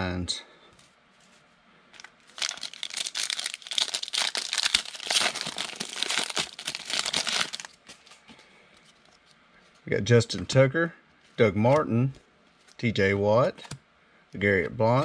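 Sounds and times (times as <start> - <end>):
card pack wrapper tearing: 2.0 - 7.8.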